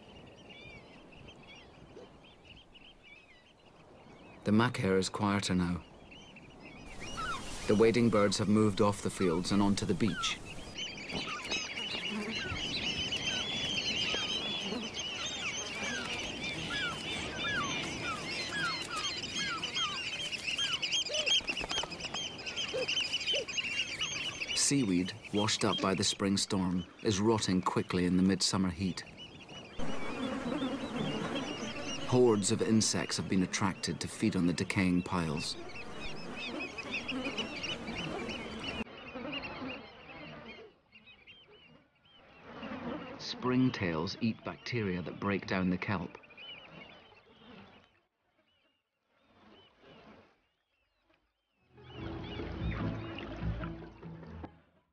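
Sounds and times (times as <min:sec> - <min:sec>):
shrill piping bird calls: 0:05.8 - 0:48.8
low buzzing hum: 0:29.8 - 0:33.0.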